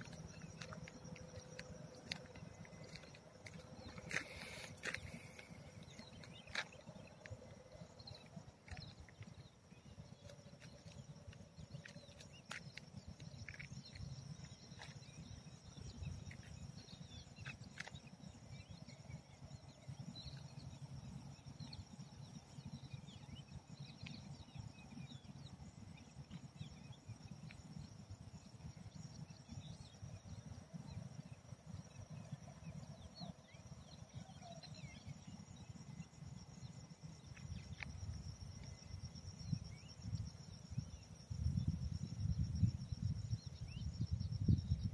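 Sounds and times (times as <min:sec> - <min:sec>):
faint chirps: 0:00.0 - 0:20.8
high insect drone: 0:00.0 - 0:44.9
wind buffeting microphone: 0:39.4 - 0:44.9.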